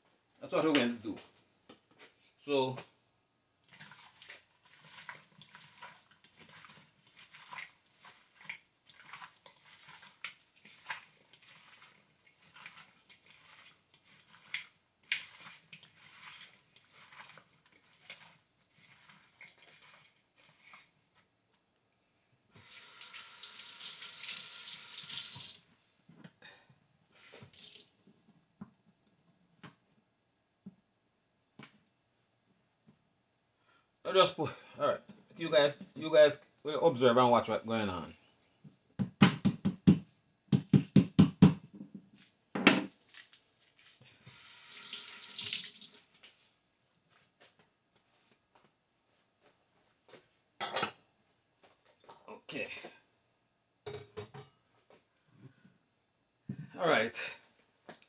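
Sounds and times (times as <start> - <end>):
hands mixing meat wet squelches: 3.6 - 21.7, 43.0 - 44.2
sink tap running: 22.6 - 25.6, 44.3 - 46.0.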